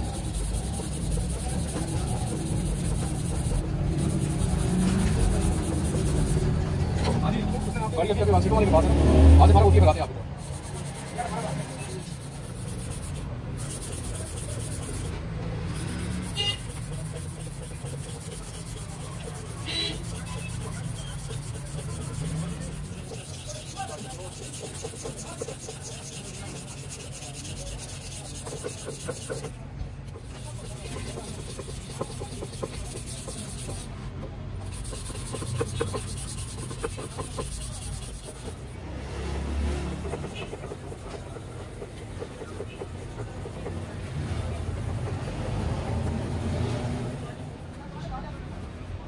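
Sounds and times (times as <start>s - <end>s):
hands rubbing plastic strip: 10.4s - 34.0s, 34.6s - 38.8s, 39.8s - 45.3s
plastic strip scraping on board: 34.6s - 38.8s, 39.8s - 45.3s.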